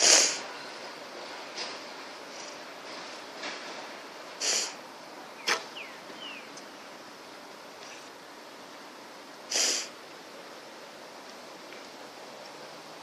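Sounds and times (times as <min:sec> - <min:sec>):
short hissing bursts: 0:00.0 - 0:00.5, 0:04.4 - 0:04.8, 0:05.4 - 0:05.8, 0:09.5 - 0:10.0
bow shot crack: 0:05.4 - 0:05.7.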